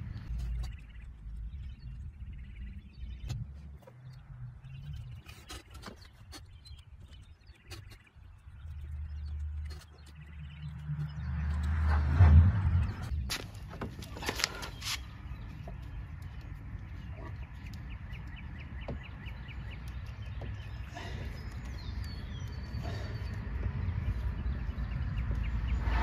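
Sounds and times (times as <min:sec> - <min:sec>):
birds chirping: 0:00.0 - 0:26.0
low rumble: 0:08.6 - 0:13.3, 0:19.3 - 0:26.0.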